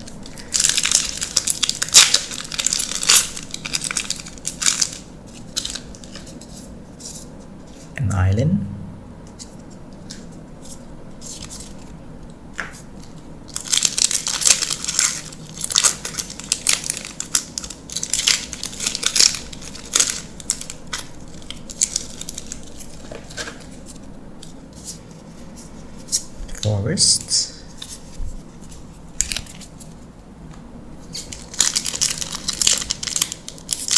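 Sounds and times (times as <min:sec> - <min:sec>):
foil wrapper tearing and crinkling: 0:00.0 - 0:06.5, 0:13.0 - 0:24.9, 0:28.0 - 0:29.9, 0:31.1 - 0:33.9.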